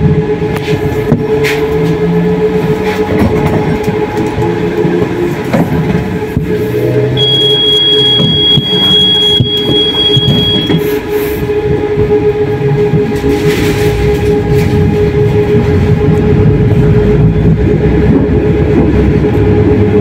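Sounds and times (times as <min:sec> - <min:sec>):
tram wheels rumbling on rail: 0:00.0 - 0:20.0
thin high tone: 0:07.2 - 0:11.0.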